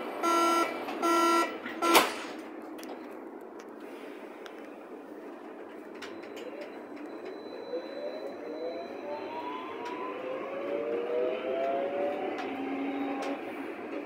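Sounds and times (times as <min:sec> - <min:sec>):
train traction motors whining: 0:06.0 - 0:14.0.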